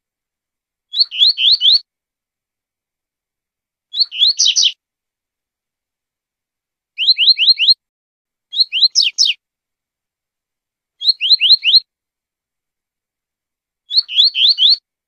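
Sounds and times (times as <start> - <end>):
bird singing whistled notes: 0.9 - 1.9, 3.9 - 4.8, 7.0 - 7.8, 8.5 - 9.4, 11.0 - 11.9, 13.9 - 14.9.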